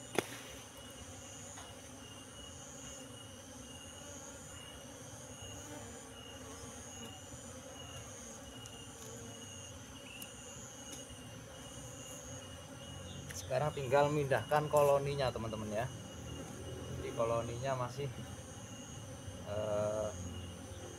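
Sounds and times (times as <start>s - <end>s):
bees buzzing: 0.0s - 20.9s
high pulsing insect chirp: 0.0s - 20.9s.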